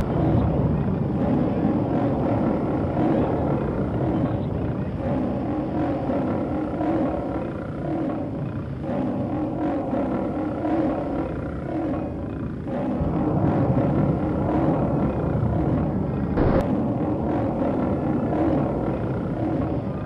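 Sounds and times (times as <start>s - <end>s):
low rumble: 10.5s - 20.0s
sharp hit: 16.4s - 16.7s.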